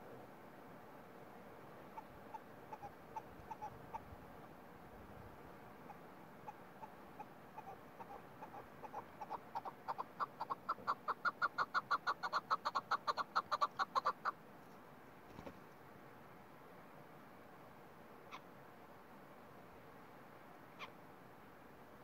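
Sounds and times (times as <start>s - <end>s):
partridge clucking calls: 1.9s - 4.1s, 5.8s - 14.4s, 20.8s - 21.0s.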